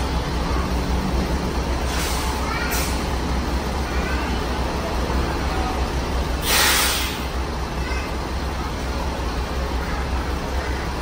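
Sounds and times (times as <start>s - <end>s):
diesel engine rumbling: 0.0s - 11.0s
air brake hiss: 1.9s - 3.0s, 6.4s - 7.4s.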